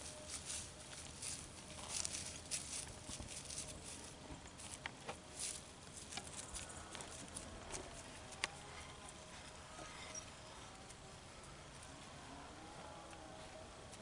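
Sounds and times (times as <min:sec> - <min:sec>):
leaves rustling in gusty wind: 0:00.0 - 0:09.7.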